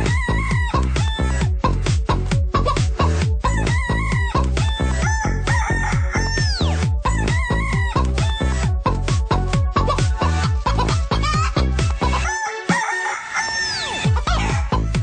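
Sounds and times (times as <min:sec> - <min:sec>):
fast kick drum beat: 0:00.0 - 0:12.2, 0:14.1 - 0:15.0
chopped chicken clucks and crows: 0:03.4 - 0:08.4, 0:12.1 - 0:14.8.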